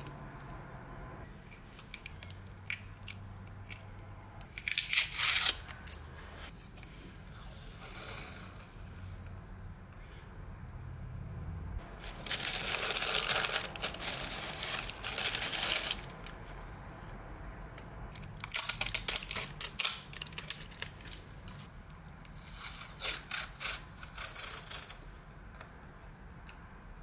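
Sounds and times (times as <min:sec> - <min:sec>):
paper crinkling: 0:11.8 - 0:16.4.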